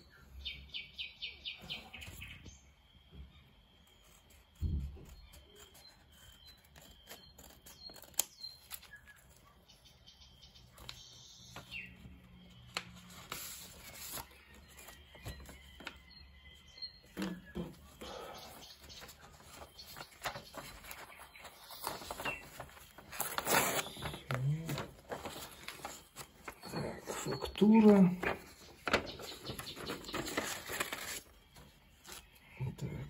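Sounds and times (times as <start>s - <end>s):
paper rustling: 3.9s - 9.4s, 12.4s - 16.0s, 18.0s - 32.4s
scissors snipping paper envelope: 5.4s - 9.2s, 18.8s - 31.3s
bird chirping trill: 13.7s - 33.0s.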